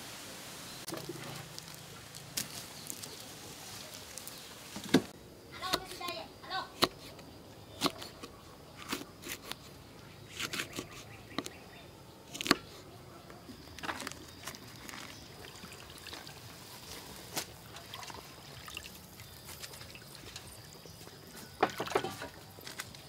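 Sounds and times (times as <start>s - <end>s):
soup bubbling and simmering: 0.6s - 5.2s, 13.7s - 23.0s.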